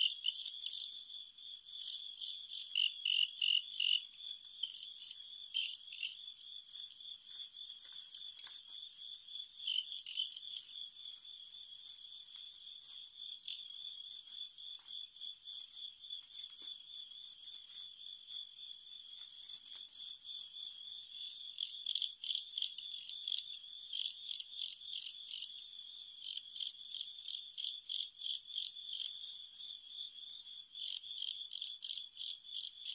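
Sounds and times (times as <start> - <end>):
crickets trilling: 0.0 - 32.9
loud cricket chirps: 0.0 - 32.9.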